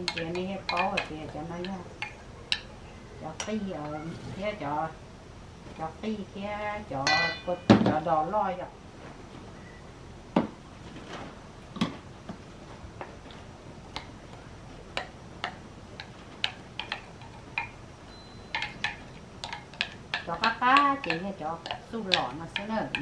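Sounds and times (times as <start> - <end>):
wooden spoon tapping glass jar: 15.0 - 23.0.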